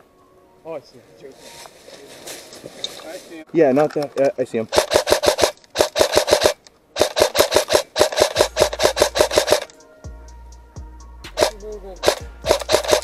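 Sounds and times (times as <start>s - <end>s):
airsoft rifle rapid fire: 4.7s - 9.7s, 11.4s - 13.0s.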